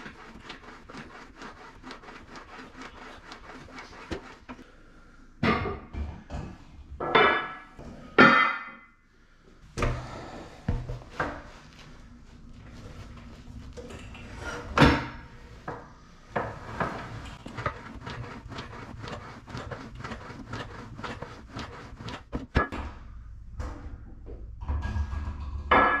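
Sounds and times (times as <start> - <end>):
leg press sled clicking and rattling: 16.6 - 22.7.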